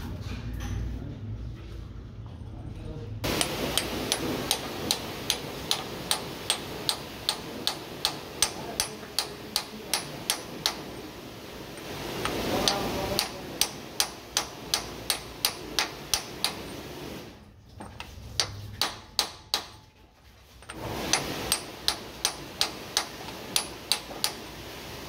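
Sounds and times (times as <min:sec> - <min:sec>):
hammer knocking on metal: 0:03.3 - 0:11.0, 0:12.3 - 0:16.7, 0:17.8 - 0:19.8, 0:21.1 - 0:24.5.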